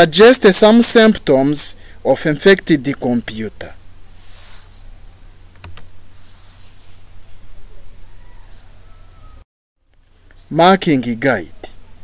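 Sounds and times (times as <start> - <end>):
insect chirping: 0.0 - 9.4
steady low hum: 0.0 - 12.0.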